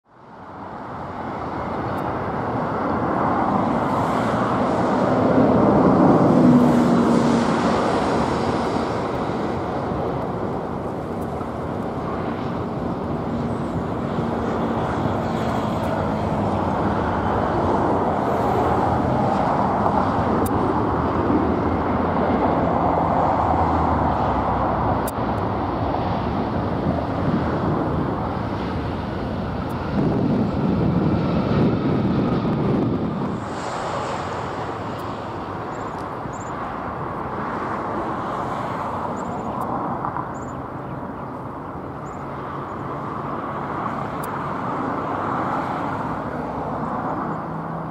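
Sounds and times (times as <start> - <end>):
jet engine roar: 0.1 - 47.9.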